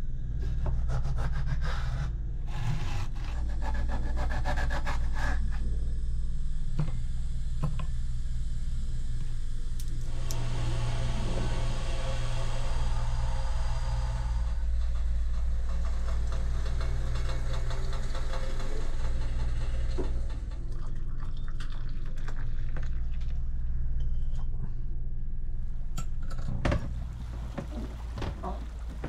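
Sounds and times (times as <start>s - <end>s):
steady low hum: 0.0s - 29.0s
hot water pouring into glasses: 26.9s - 29.0s.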